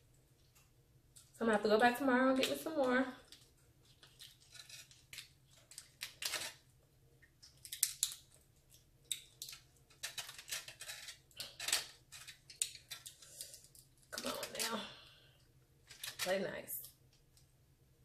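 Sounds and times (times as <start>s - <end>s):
prawn shell cracking: 3.2s - 14.7s.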